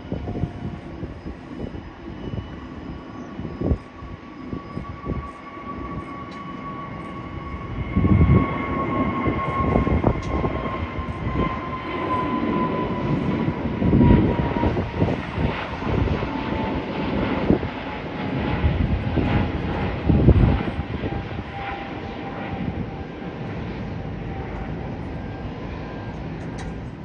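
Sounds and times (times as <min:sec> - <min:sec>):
jet engine whine: 0:00.0 - 0:27.0.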